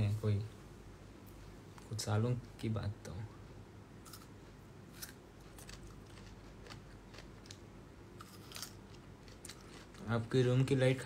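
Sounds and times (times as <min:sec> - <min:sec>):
person chewing crunchy food: 0:04.0 - 0:10.1.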